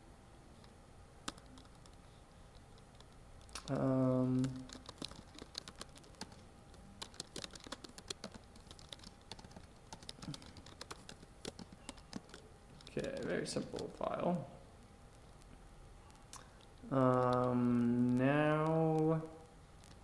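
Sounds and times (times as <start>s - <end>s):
keyboard typing clicks: 1.2s - 2.0s, 2.8s - 14.1s, 16.4s - 19.1s.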